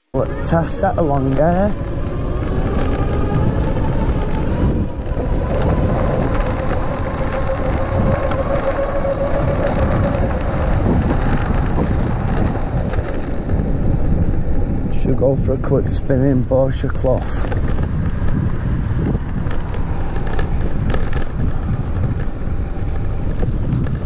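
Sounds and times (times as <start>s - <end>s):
wind rumble on microphone: 0.0s - 24.0s
electric motor whining: 0.6s - 14.0s.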